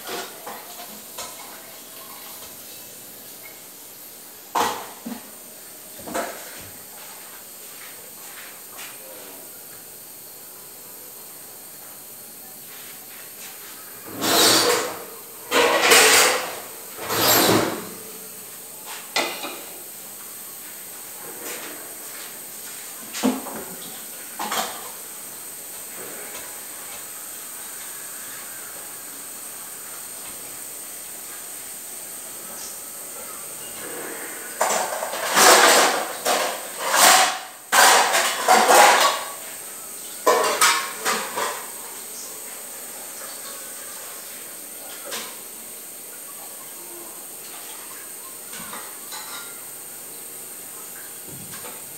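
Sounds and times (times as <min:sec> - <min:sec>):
pots and utensils clattering: 0:00.0 - 0:03.7, 0:04.5 - 0:05.4, 0:06.0 - 0:07.3, 0:14.0 - 0:18.1, 0:18.9 - 0:19.9, 0:21.2 - 0:25.1, 0:32.5 - 0:42.2, 0:47.5 - 0:49.8
faint steady hiss: 0:00.0 - 0:51.9.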